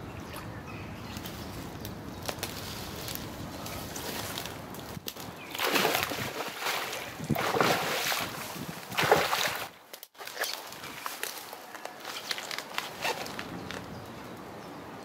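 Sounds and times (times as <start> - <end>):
fish splashing water: 5.3 - 11.2.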